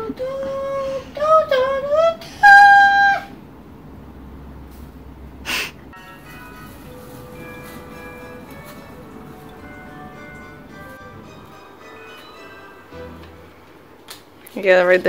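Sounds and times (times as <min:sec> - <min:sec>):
soft background music: 0:06.0 - 0:15.0.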